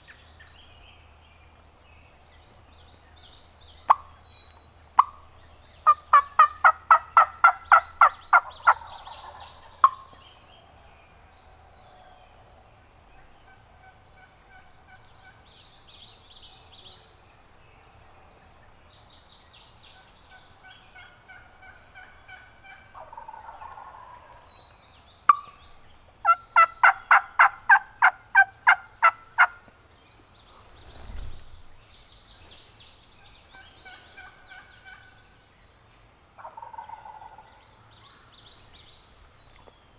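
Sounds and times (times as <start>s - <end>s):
songbirds chirping faintly: 0.0s - 39.9s
turkey yelping: 21.0s - 24.3s, 26.3s - 29.5s.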